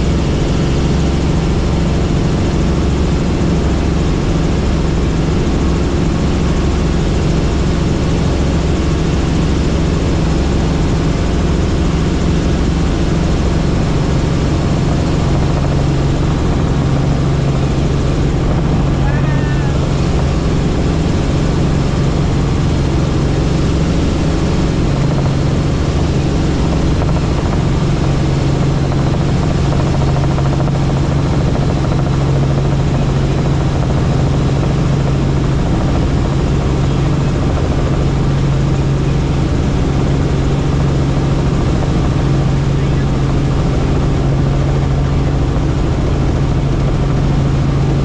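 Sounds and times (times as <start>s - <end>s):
helicopter engine and rotor drone: 0.0s - 48.0s.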